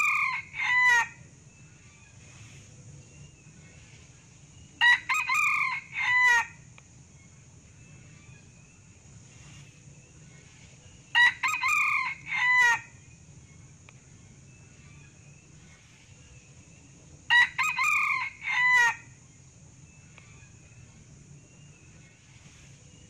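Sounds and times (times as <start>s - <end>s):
rooster crowing: 0.0s - 1.2s, 4.8s - 6.6s, 11.1s - 12.9s, 17.3s - 19.1s.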